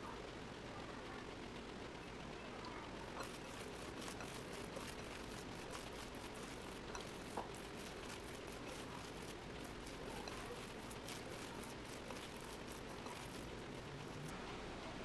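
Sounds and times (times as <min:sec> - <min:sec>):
hand squishing thick batter: 0:03.1 - 0:14.3.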